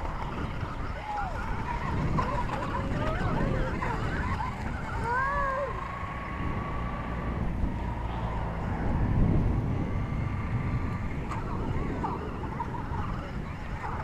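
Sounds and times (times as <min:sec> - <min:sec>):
faint thin whine: 0:00.0 - 0:14.0
wind buffeting microphone: 0:00.0 - 0:14.0
short wavering cry: 0:03.3 - 0:05.9.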